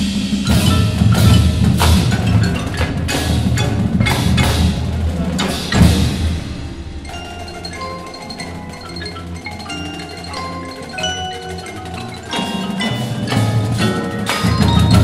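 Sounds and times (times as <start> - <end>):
heavy low drum hits: 0.0 - 7.2
marimbas and vibraphones: 0.0 - 15.0.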